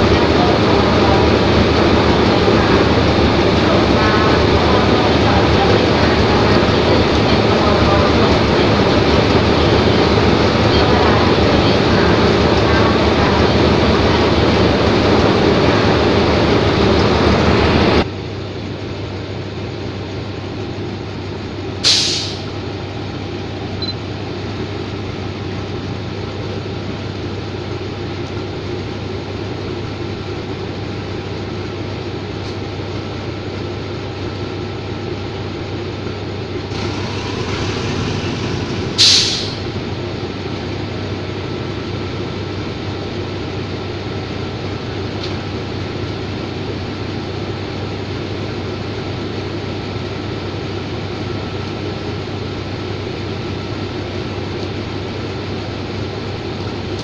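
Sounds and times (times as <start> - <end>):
diesel locomotive idling: 0.0 - 57.0
brake air hisses: 21.8 - 22.5, 36.7 - 39.8.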